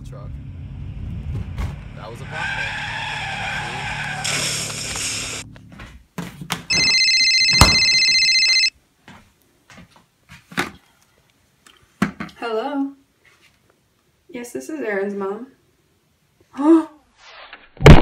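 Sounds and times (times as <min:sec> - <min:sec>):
car running with high screech: 0:00.3 - 0:05.5
telephone ringing: 0:06.7 - 0:08.7.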